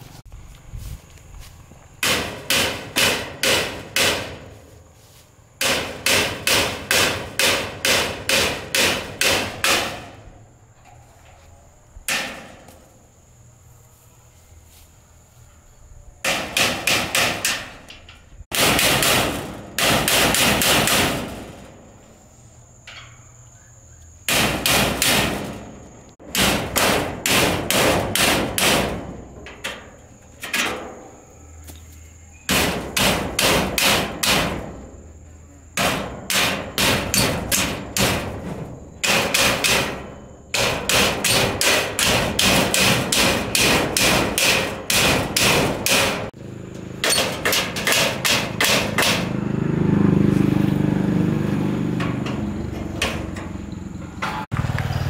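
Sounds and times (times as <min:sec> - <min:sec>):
hammer striking metal tailgate: 0:02.0 - 0:04.6, 0:05.6 - 0:11.0, 0:12.1 - 0:12.8, 0:16.2 - 0:22.0, 0:24.3 - 0:31.2, 0:32.5 - 0:35.0, 0:35.7 - 0:46.4, 0:47.0 - 0:49.4, 0:51.9 - 0:54.5.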